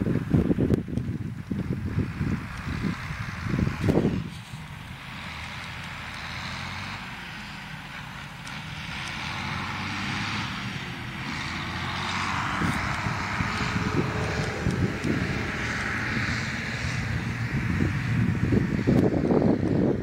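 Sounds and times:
tractor engine running: 0:00.0 - 0:20.0.

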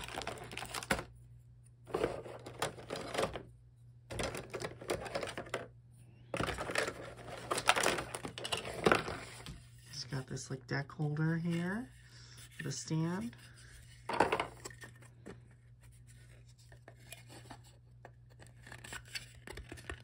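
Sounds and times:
plastic game pieces clattering: 0:04.1 - 0:05.7, 0:06.4 - 0:09.4.

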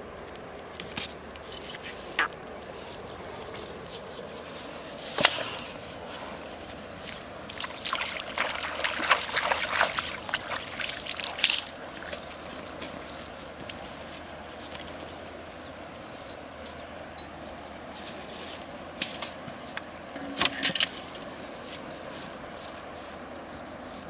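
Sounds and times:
hands splashing in water: 0:07.5 - 0:11.8.

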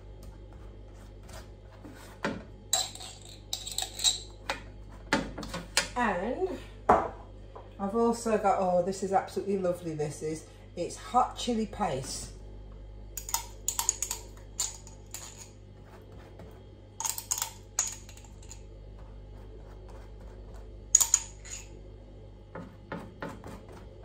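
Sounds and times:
metal knife clinking against glass jar: 0:02.8 - 0:04.3, 0:21.0 - 0:21.7.

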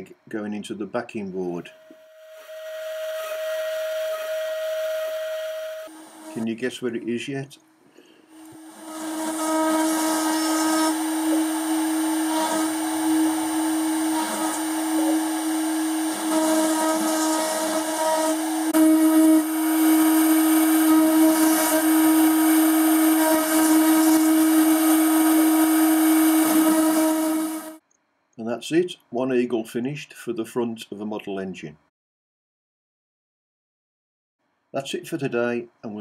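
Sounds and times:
spindle whine: 0:01.7 - 0:06.6, 0:08.4 - 0:27.8
cutter milling into metal hiss: 0:08.4 - 0:27.8.

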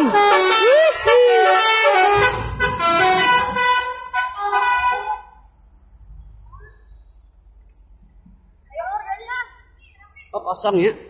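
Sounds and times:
musical bus horn playing a tune: 0:00.0 - 0:05.4
bus engine rumble: 0:00.0 - 0:10.3.

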